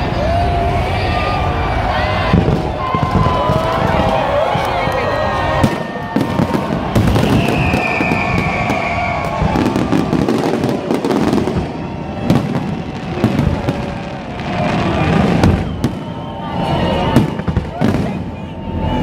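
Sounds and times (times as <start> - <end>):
fireworks bangs and crackling: 0.0 - 19.0
high falling whistle: 5.4 - 10.4, 14.5 - 19.0.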